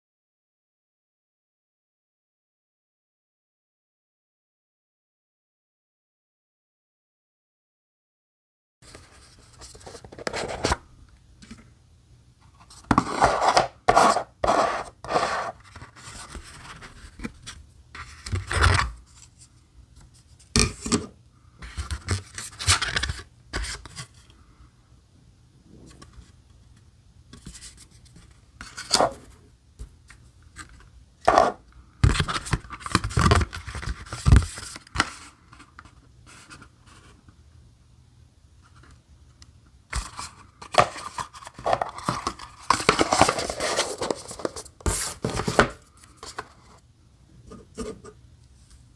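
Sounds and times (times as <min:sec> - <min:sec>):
cardboard box scraping and rubbing: 0:12.9 - 0:16.6.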